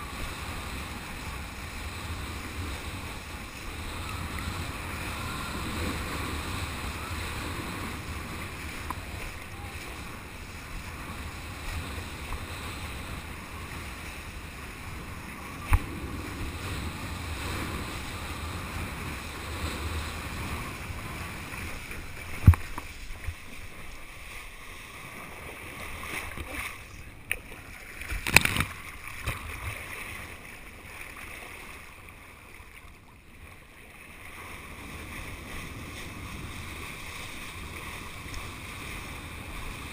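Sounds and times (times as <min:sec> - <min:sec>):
wind rushing over microphone: 0:00.0 - 0:24.1.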